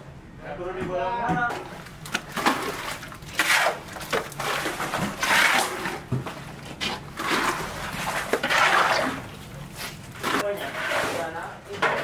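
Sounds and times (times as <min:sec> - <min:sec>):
concrete dropping into buckets: 0:01.4 - 0:12.0
shovel scraping wet concrete: 0:02.1 - 0:06.1, 0:06.8 - 0:12.0.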